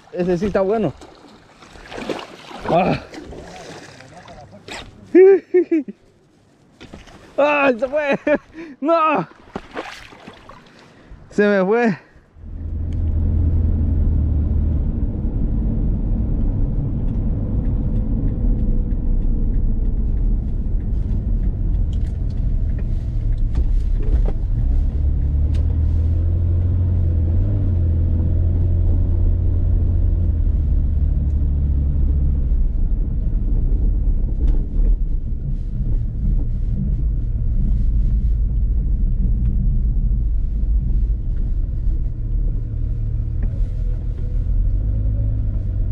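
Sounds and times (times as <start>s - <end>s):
car engine and road rumble: 10.5s - 45.9s.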